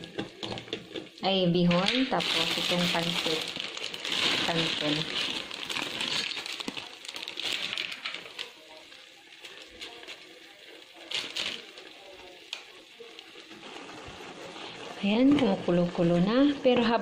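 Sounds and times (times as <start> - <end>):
plastic bag crinkling: 1.7 - 15.1.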